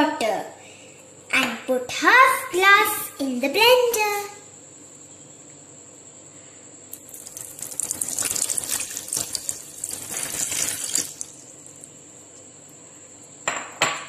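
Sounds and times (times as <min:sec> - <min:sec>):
water splashing into metal jar: 0:07.0 - 0:11.5.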